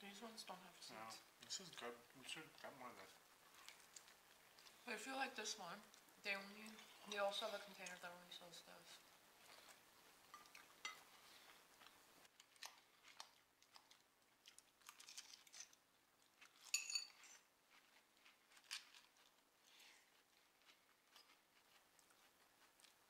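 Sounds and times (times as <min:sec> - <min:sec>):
faint chewing: 0:01.0 - 0:23.0
fork clinking against bowl: 0:10.3 - 0:11.1, 0:16.6 - 0:17.2.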